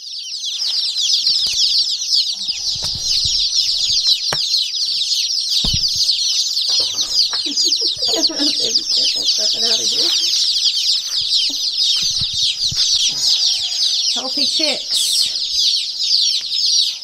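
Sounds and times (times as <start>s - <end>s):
chicks peeping: 0.0s - 17.0s
brief thumps: 2.5s - 4.6s, 5.6s - 7.4s.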